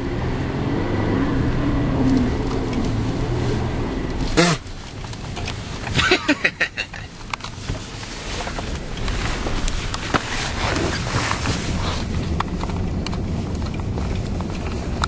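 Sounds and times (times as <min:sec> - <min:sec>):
people laughing: 0:06.0 - 0:07.1.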